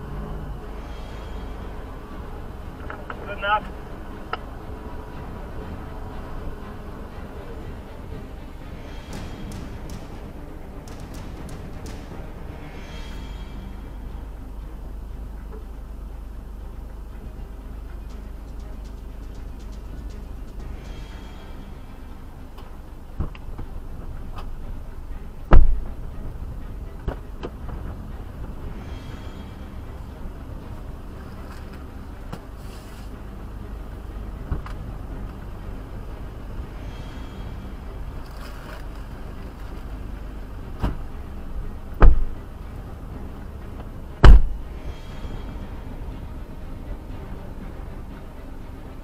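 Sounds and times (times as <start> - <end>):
low vehicle rumble: 0.0 - 49.0
heavy thump: 8.8 - 14.0, 25.5 - 26.0, 42.0 - 42.4, 44.2 - 44.7.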